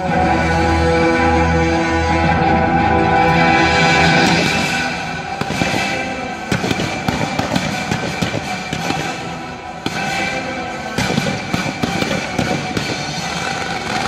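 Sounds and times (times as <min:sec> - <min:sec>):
loud music playing: 0:00.0 - 0:14.0
fireworks bangs and crackling: 0:04.0 - 0:14.0.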